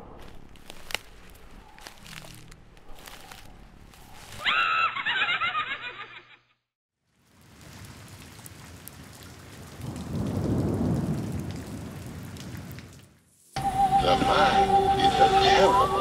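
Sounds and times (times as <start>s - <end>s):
wavering high-pitched cry: 4.4s - 5.1s
rain: 7.0s - 16.0s
thunder rumbling: 7.6s - 13.0s.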